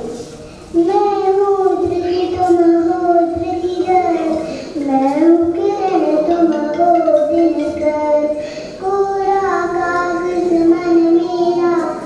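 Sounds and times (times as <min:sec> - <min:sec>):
girl singing into microphone: 0:00.7 - 0:12.0
girl breathing: 0:08.4 - 0:08.8.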